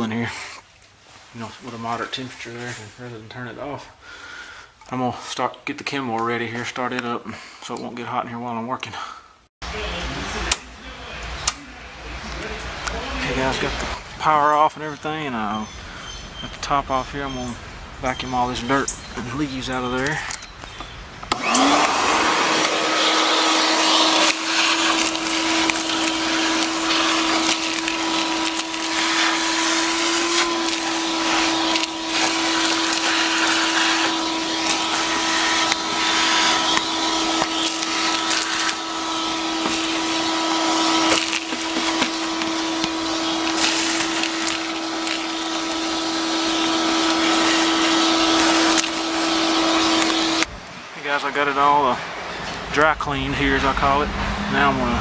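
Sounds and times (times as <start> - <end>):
vacuum motor whining: 21.3 - 50.5
debris clicking in hose: 24.1 - 38.8, 41.0 - 45.9.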